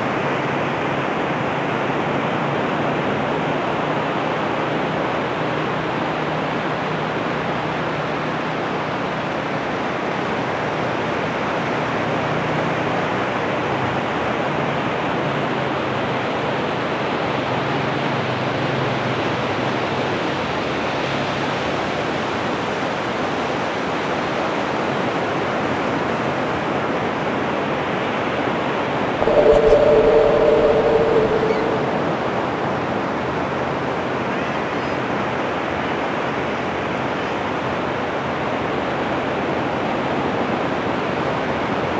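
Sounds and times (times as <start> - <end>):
two-pitch steady tone: 29.2 - 33.2
wind: 29.2 - 33.5.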